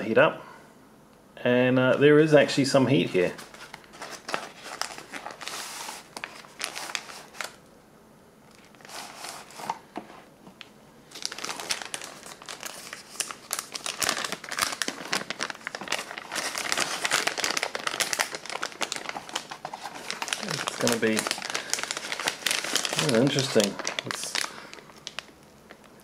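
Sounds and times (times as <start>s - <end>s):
plastic bag crinkling: 3.2s - 7.6s, 8.5s - 9.8s, 11.1s - 26.0s.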